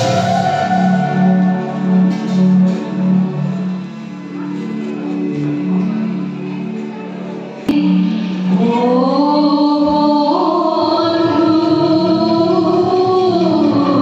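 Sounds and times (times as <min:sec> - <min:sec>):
devotional stage music: 0:00.0 - 0:14.0.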